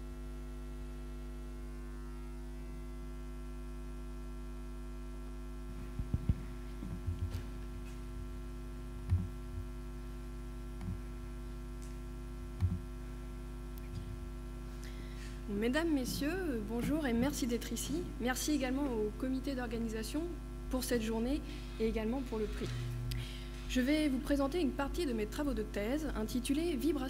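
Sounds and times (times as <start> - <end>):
electrical mains hum: 0.0 - 27.0
soft low thumps: 5.8 - 8.4, 9.0 - 9.8, 10.8 - 11.1, 12.5 - 12.9, 15.7 - 18.0.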